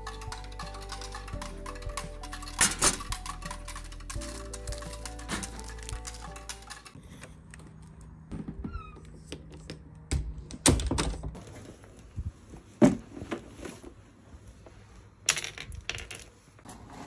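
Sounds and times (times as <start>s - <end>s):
objects being handled: 0.0s - 10.0s.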